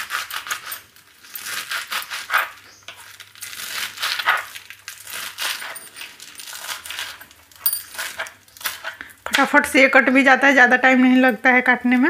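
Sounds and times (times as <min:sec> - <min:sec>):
knife chopping leafy greens: 0:00.0 - 0:07.2.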